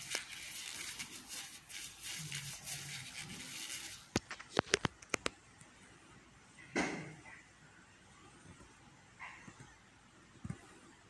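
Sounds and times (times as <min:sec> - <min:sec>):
steady hiss: 0:00.0 - 0:04.2.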